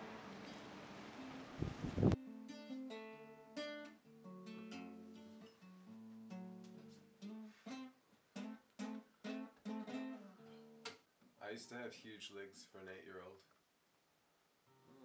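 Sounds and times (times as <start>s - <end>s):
acoustic guitar picked notes: 0.0s - 11.0s.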